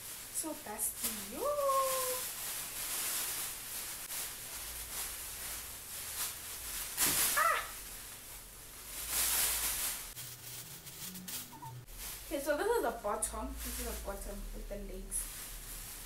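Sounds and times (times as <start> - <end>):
plastic bag crinkling and rustling: 0.0 - 16.0.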